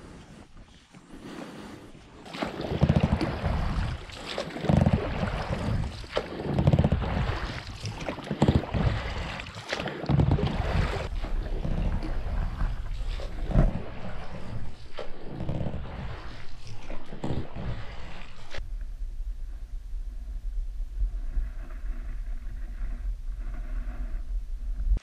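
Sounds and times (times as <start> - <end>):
water rushing along boat hull: 0.0 - 18.6
wind noise on microphone: 17.2 - 25.0.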